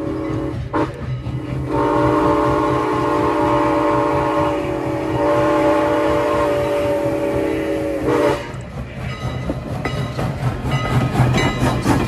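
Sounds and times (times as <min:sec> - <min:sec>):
steam whistle blast: 0:00.0 - 0:01.0, 0:01.6 - 0:08.6
steam locomotive running: 0:00.0 - 0:12.0.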